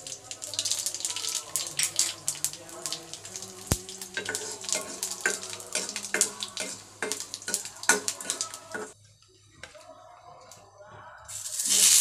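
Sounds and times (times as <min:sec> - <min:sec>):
spices crackling in hot oil: 0:00.0 - 0:09.0, 0:11.3 - 0:12.0
steel spoon stirring: 0:03.3 - 0:09.0.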